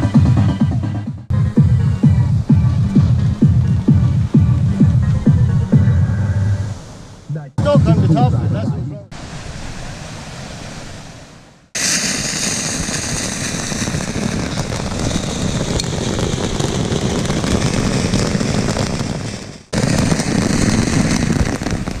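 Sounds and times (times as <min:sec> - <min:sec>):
firework fountain crackling hiss: 0:11.8 - 0:22.0.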